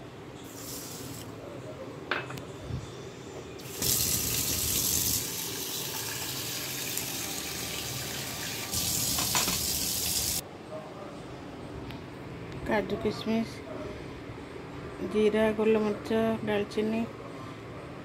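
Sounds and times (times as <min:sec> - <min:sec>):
water running from a tap: 0:03.6 - 0:10.4.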